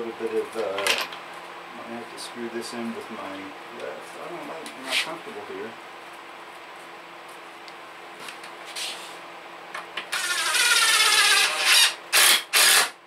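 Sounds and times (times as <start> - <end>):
impact driver driving a screw: 10.1 - 13.0.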